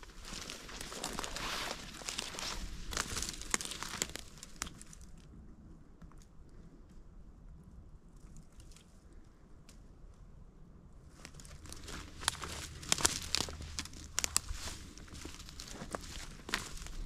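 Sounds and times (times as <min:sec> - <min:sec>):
footsteps crunching through twigs: 0:00.0 - 0:05.0, 0:11.1 - 0:17.0.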